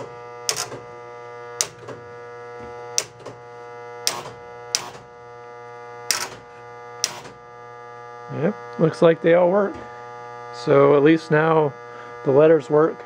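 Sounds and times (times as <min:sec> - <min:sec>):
pinball relays clacking: 0:00.0 - 0:00.9, 0:01.6 - 0:02.0, 0:04.1 - 0:05.0, 0:06.1 - 0:06.4
electrical hum: 0:00.0 - 0:13.0.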